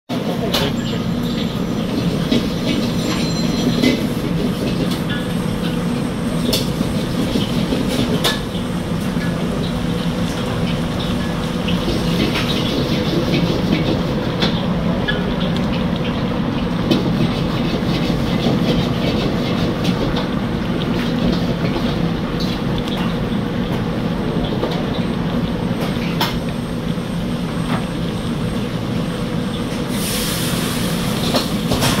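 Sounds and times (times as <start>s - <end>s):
gas burner rumbling: 0.1s - 32.0s
broth bubbling and popping: 3.8s - 32.0s
hiss: 29.9s - 32.0s.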